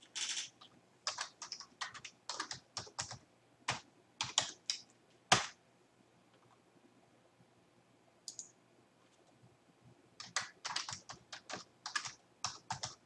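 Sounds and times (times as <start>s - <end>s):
computer keyboard typing: 0.0s - 5.6s, 8.3s - 8.6s, 10.2s - 13.0s.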